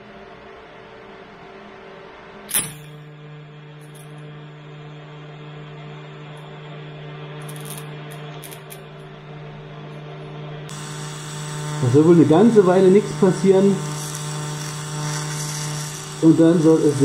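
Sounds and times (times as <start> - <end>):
welding arc buzzing: 6.6 - 17.0
welding arc striking crack: 10.7 - 17.0.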